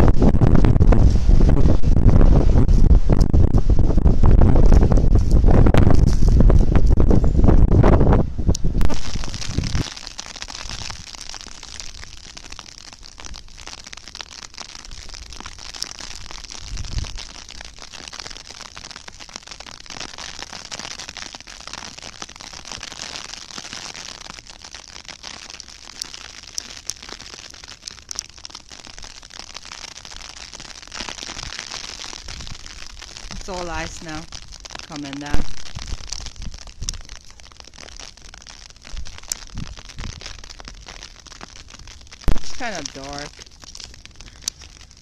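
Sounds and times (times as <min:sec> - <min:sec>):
sleet ticking on snow: 0:04.7 - 0:07.2, 0:22.1 - 0:45.0.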